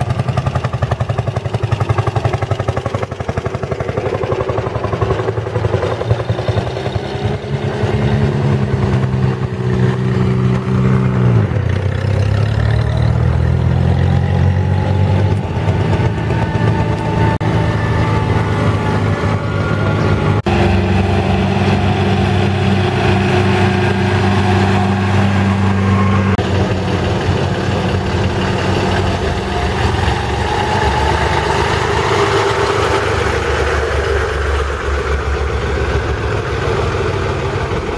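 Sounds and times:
fire engine passing: 0:00.0 - 0:37.9
small tractor engine running: 0:00.0 - 0:37.9
rising whine: 0:12.6 - 0:37.9.

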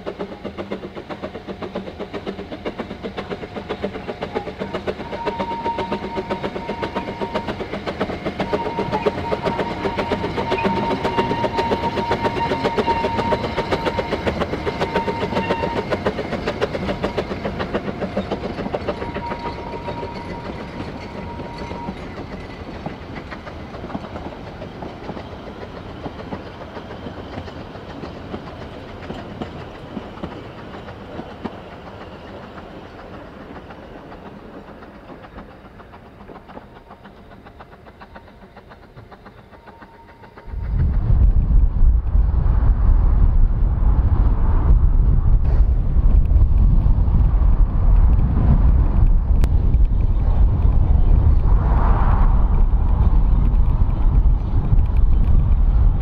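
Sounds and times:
rhythmic wheel clatter: 0:00.0 - 0:41.3
steam locomotive exhaust beats: 0:00.0 - 0:56.0.

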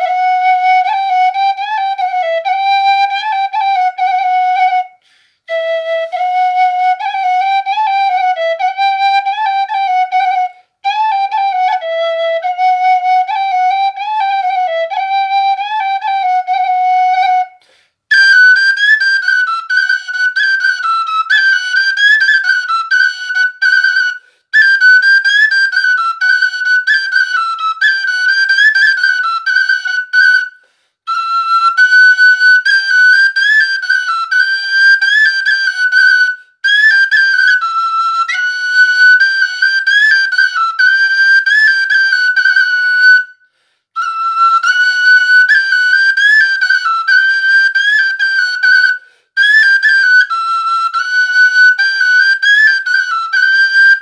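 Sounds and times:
wooden flute folk melody: 0:00.0 - 0:54.0.

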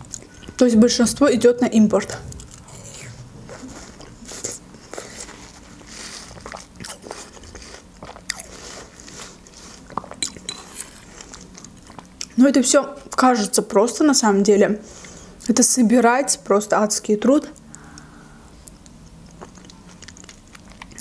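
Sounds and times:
wet chewing sounds: 0:02.3 - 0:12.4, 0:17.6 - 0:21.0.

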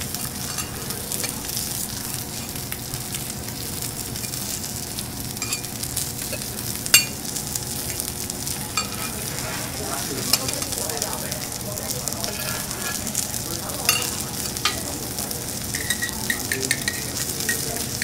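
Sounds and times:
food sizzling on griddle: 0:00.0 - 0:18.0
metal spatulas clicking and scraping: 0:00.3 - 0:01.6, 0:08.7 - 0:09.2, 0:12.2 - 0:14.9, 0:15.7 - 0:17.6.

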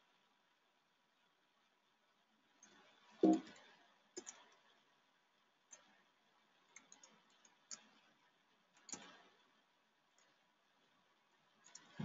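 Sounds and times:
keyboard and mouse clicks: 0:02.6 - 0:03.6, 0:04.2 - 0:04.6, 0:06.7 - 0:08.0, 0:08.8 - 0:09.3, 0:11.6 - 0:12.0.

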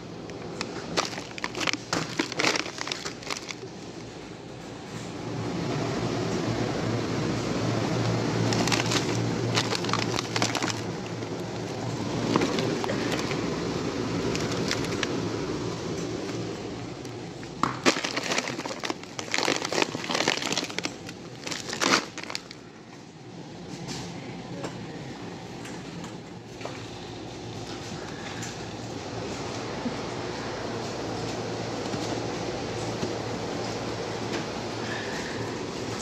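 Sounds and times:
store hum: 0:00.0 - 0:36.0
plastic bag crinkling: 0:00.3 - 0:03.9, 0:08.4 - 0:15.2, 0:17.0 - 0:22.6
sharp crunches: 0:17.6 - 0:22.4.

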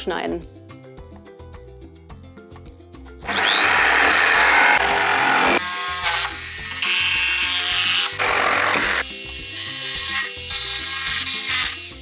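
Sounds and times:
background music with steady beat: 0:00.0 - 0:03.3
electric jigsaw cutting wood: 0:03.2 - 0:09.2.

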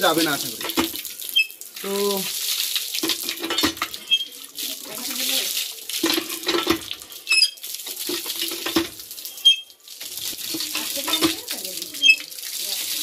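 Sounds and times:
water gushing onto concrete: 0:00.0 - 0:13.0
hand pump metallic clinks: 0:03.0 - 0:04.3, 0:06.0 - 0:09.7, 0:10.5 - 0:12.3.

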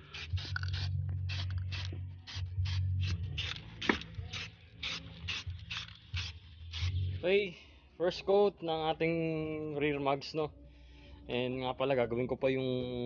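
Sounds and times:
spray paint can hissing: 0:00.0 - 0:07.2.

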